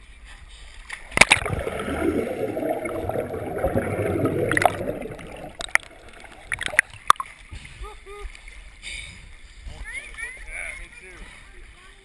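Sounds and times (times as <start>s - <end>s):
pool water splashing: 0.9s - 7.5s
muffled underwater rushing: 1.1s - 7.3s.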